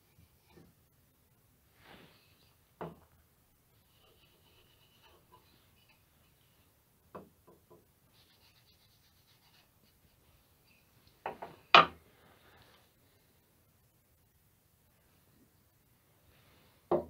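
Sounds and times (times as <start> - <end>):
faint rubbing: 1.7 - 2.7, 3.8 - 6.8, 8.1 - 11.0.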